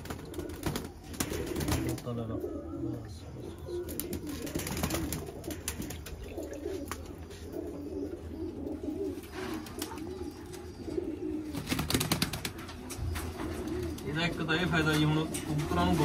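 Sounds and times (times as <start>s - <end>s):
wings fluttering: 0.0s - 2.2s, 3.8s - 7.2s, 11.4s - 14.1s
pigeons cooing: 0.0s - 16.0s.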